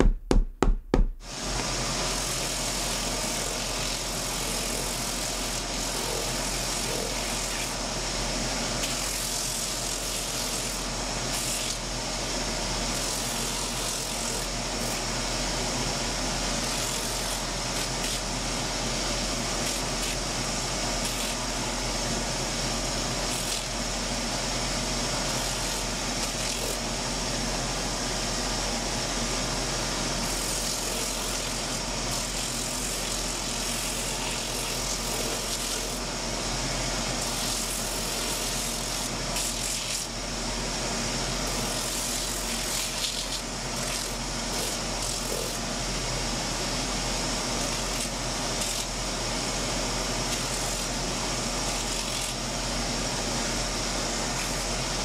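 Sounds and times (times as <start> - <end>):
machine whirring hiss: 1.2 - 55.0.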